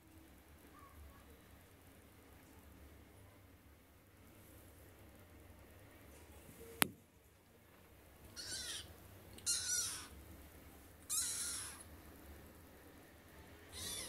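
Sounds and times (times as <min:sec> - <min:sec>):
kitten meowing: 0:08.4 - 0:10.2, 0:11.1 - 0:11.9, 0:13.7 - 0:14.0.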